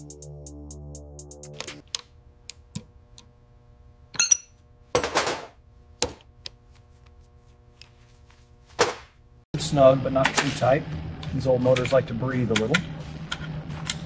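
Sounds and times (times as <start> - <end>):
faint steady hum: 1.8 - 5.0
ringing metallic clink: 4.2 - 4.6.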